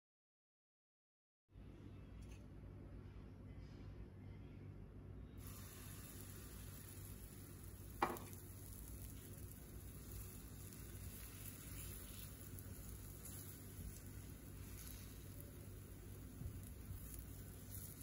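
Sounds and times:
batter hitting hot oil: 5.4s - 18.0s
hot oil sizzling in a frying pan: 5.4s - 18.0s.

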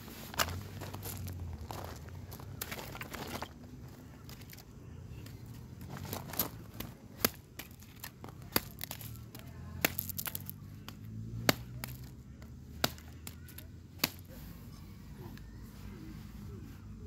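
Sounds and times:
wood splitting cracks: 5.2s - 14.3s
hatchet chopping wood: 9.8s - 13.4s.

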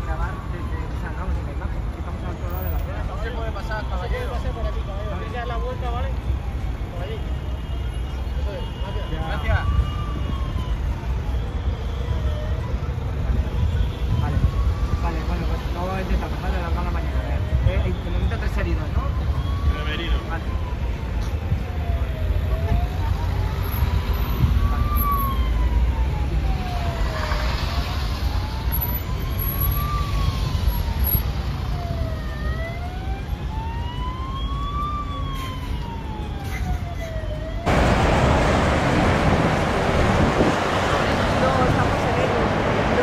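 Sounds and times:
emergency siren wailing: 0.0s - 43.0s
road traffic rumble: 0.0s - 43.0s
higher siren sweeping: 19.1s - 43.0s
loud steady noise: 37.7s - 43.0s.

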